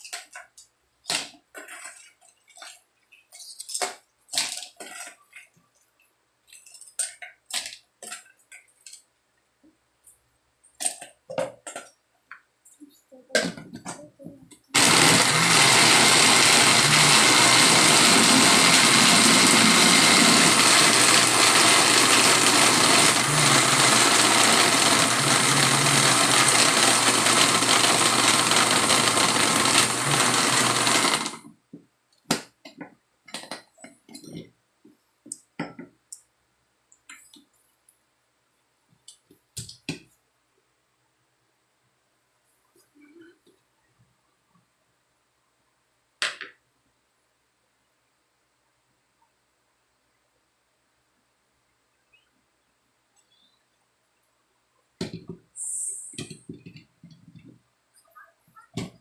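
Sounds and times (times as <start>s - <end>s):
blender motor running: 14.8s - 31.4s.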